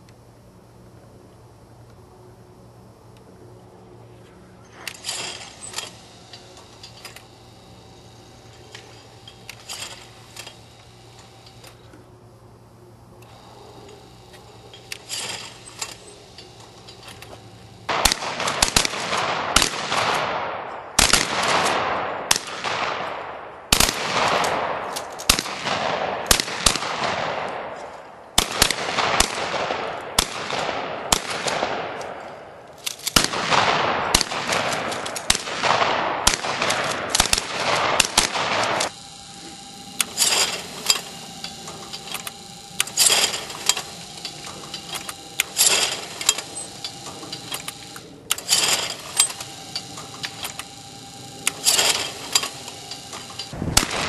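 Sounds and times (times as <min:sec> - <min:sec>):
faint steady whine: 0:00.0 - 0:54.0
trap machine clicks: 0:13.2 - 0:20.3, 0:36.3 - 0:54.0
shotgun shots with echo: 0:17.9 - 0:27.8, 0:28.4 - 0:32.2, 0:33.1 - 0:38.9, 0:53.6 - 0:54.0.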